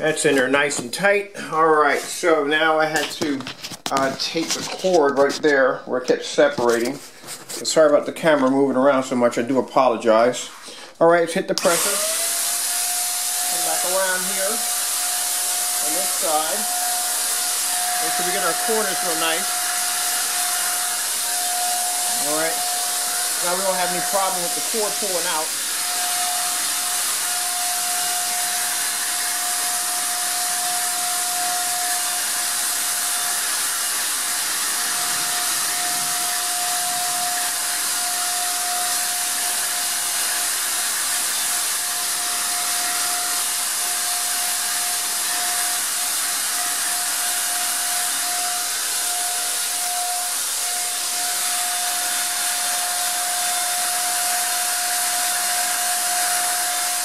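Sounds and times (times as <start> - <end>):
electric paint sprayer running: 11.6 - 57.0.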